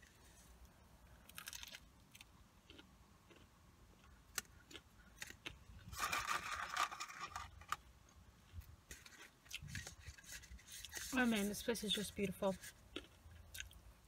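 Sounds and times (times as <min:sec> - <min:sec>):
food packaging rustling: 0:05.2 - 0:07.9, 0:08.9 - 0:13.2.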